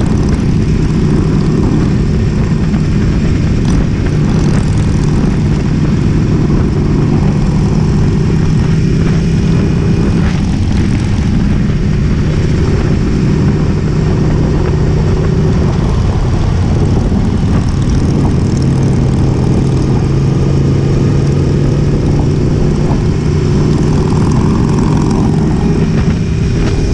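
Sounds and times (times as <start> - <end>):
motorcycle engine cruising: 0.0 - 26.9.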